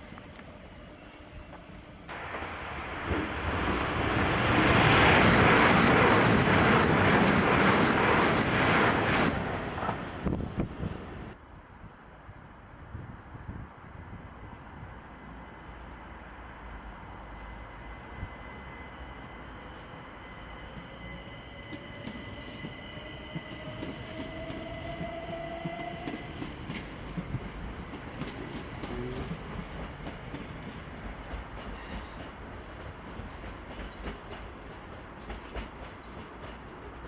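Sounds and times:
train rumble: 0:00.0 - 0:11.4, 0:12.8 - 0:37.0
wheels clicking over rail joints: 0:21.7 - 0:37.0.

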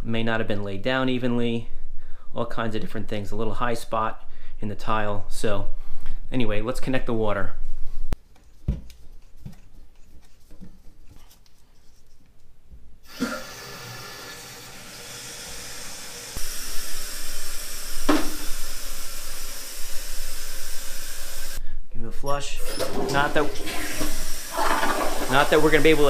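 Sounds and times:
water hissing into toilet tank: 0:13.0 - 0:21.6, 0:22.7 - 0:26.0.

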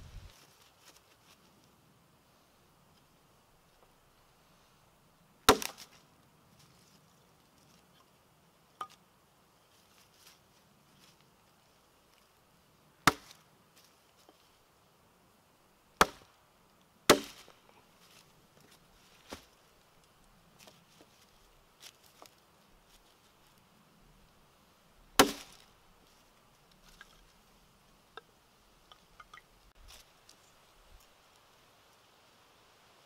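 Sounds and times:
knife splitting wood: 0:05.5 - 0:05.9, 0:13.0 - 0:13.4, 0:16.0 - 0:16.3, 0:17.1 - 0:17.5, 0:25.2 - 0:25.7.

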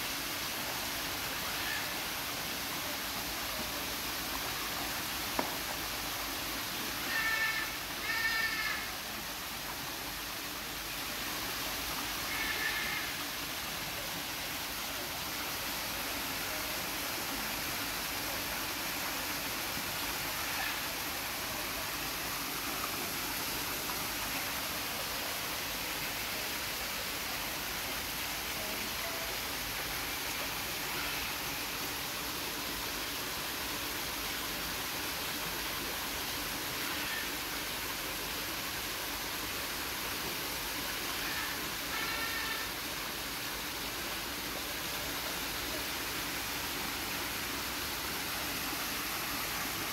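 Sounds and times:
waterfall pouring into pond: 0:00.0 - 0:49.9.

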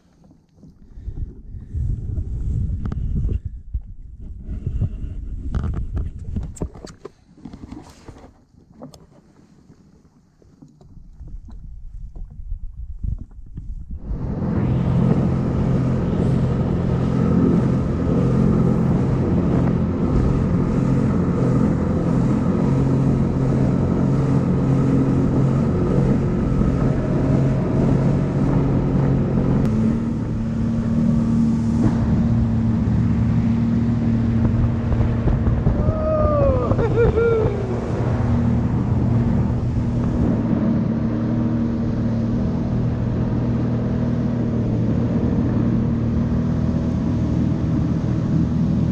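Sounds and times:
water noise: 0:00.0 - 0:48.9
watercraft engine running: 0:00.0 - 0:48.9
wind: 0:00.0 - 0:48.9.

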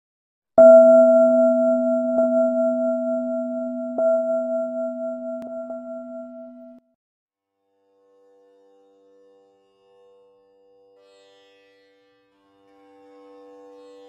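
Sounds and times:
struck metal bell ringing: 0:00.6 - 0:06.8.

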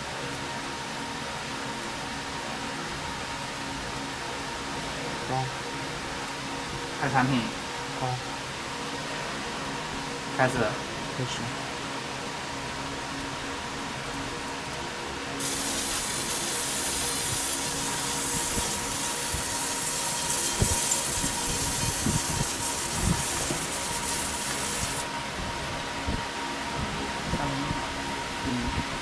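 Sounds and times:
machine hum: 0:00.0 - 0:29.0
laser engraving hiss: 0:15.4 - 0:25.0.

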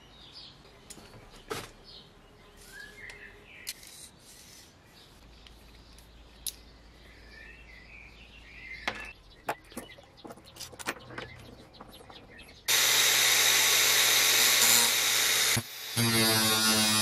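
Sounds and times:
birds chirping: 0:00.0 - 0:12.7.

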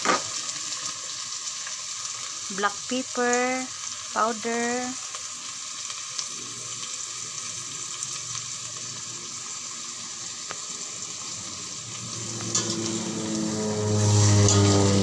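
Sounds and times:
food sizzling in oil: 0:00.0 - 0:15.0
low hum: 0:11.6 - 0:15.0.

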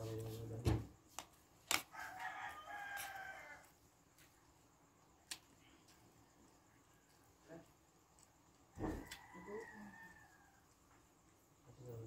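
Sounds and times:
rooster crowing: 0:01.9 - 0:03.8, 0:08.7 - 0:10.8.

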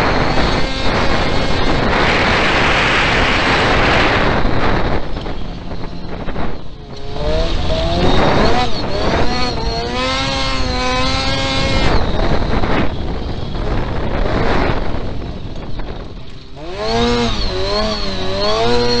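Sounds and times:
race car engine revving: 0:00.0 - 0:05.4, 0:06.1 - 0:13.0, 0:16.5 - 0:19.0
wind and ground rumble: 0:00.0 - 0:18.9.

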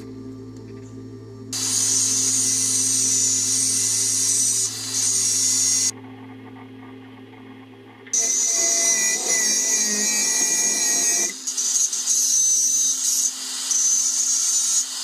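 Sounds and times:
steady low hum: 0:00.0 - 0:11.5
angle grinder cutting steel tube: 0:01.5 - 0:05.9, 0:08.2 - 0:15.0.

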